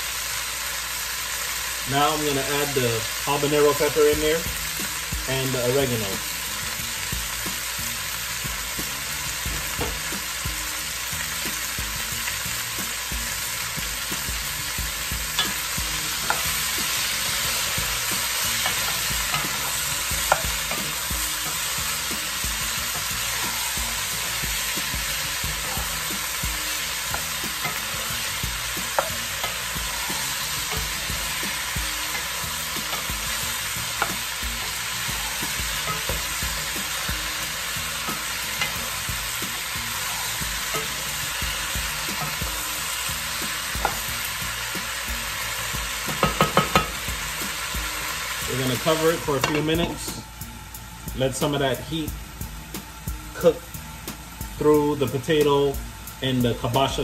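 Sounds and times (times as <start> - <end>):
vegetables sizzling in a pot: 0.0 - 57.0
spoon knocking against pot: 46.1 - 47.0.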